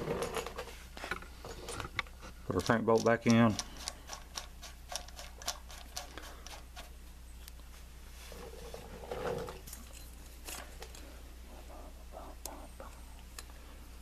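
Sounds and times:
light metallic clicks and taps: 0:02.0 - 0:04.0.

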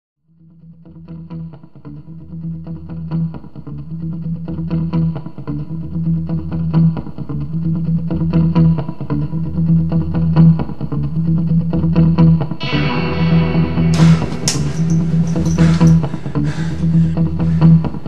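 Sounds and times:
effects-laden guitar music: 0:00.4 - 0:18.0.

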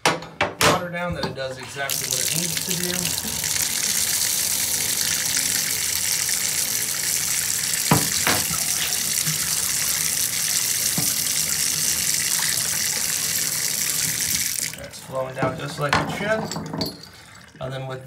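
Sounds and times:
water draining: 0:01.5 - 0:17.8
faucet water splashing into tub: 0:01.8 - 0:15.5.

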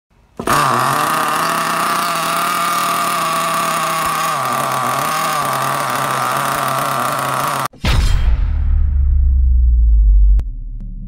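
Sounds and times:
small engine idling: 0:00.2 - 0:07.7.

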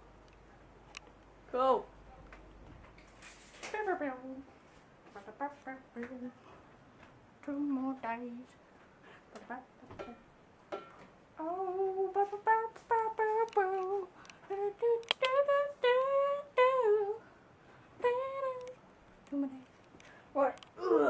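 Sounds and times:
boy humming: 0:20.8 - 0:21.0.

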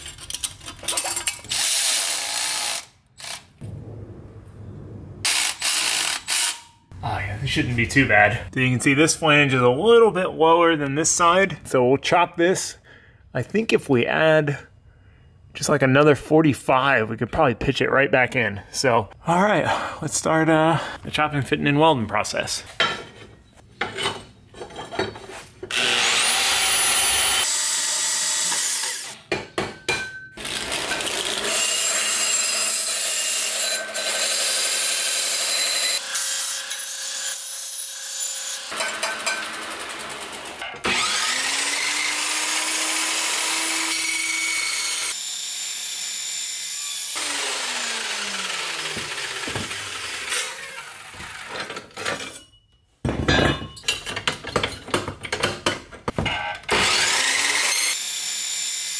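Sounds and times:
belt grinder grinding metal: 0:01.0 - 0:03.6, 0:05.3 - 0:06.7, 0:25.7 - 0:29.2, 0:30.4 - 0:52.0, 0:56.7 - 0:58.9
bandsaw cutting metal tube: 0:05.3 - 0:06.7, 0:25.7 - 0:29.3, 0:30.4 - 0:52.1, 0:56.3 - 0:58.9
tool motor spinning: 0:47.2 - 0:51.6, 0:56.7 - 0:58.2.

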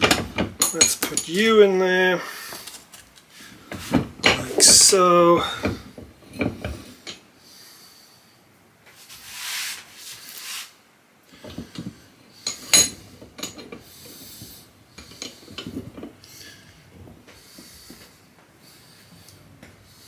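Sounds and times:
metal knocks and clinks: 0:00.0 - 0:01.5, 0:03.7 - 0:04.9, 0:11.4 - 0:13.8, 0:15.0 - 0:16.2
rustling hiss: 0:00.8 - 0:20.0
vise handle scraping: 0:02.4 - 0:07.2, 0:11.3 - 0:18.2.

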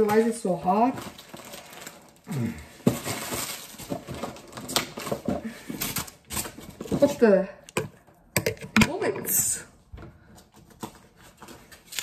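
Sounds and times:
plastic bag tearing and crinkling: 0:00.0 - 0:07.1, 0:11.3 - 0:12.0.

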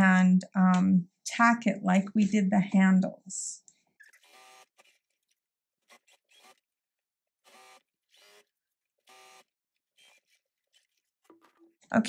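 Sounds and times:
electric sewing machine stitching: 0:04.0 - 0:05.2, 0:05.8 - 0:06.8, 0:07.4 - 0:11.1.

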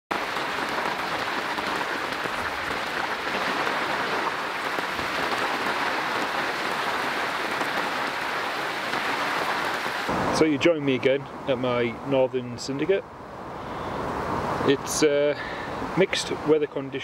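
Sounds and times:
rain falling on lake: 0:00.1 - 0:10.1.

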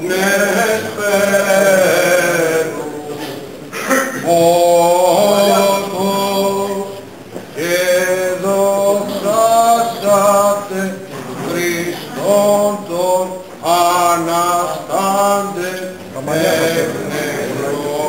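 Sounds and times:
man chanting a hymn: 0:00.0 - 0:18.0.

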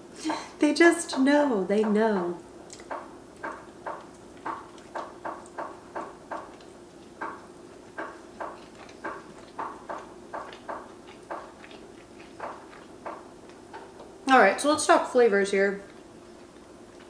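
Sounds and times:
close chewing of food: 0:02.4 - 0:14.3, 0:15.7 - 0:17.0.

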